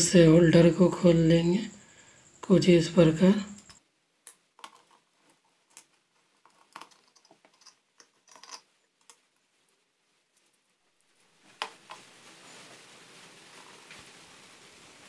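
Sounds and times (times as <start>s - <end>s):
screwdriver clicks and taps: 3.7s - 5.0s
screws and plastic holder handled: 4.6s - 9.2s.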